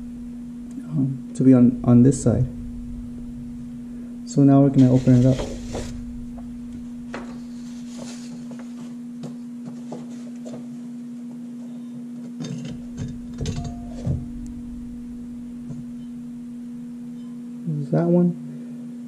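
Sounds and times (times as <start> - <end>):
steady low hum: 0.0 - 19.0
metal clinks and knocks: 12.4 - 14.2.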